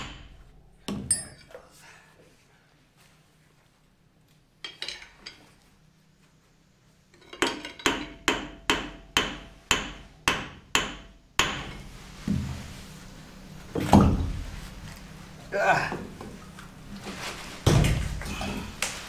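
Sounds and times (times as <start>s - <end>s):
hammer striking metal: 0.0s - 1.4s, 7.8s - 11.8s.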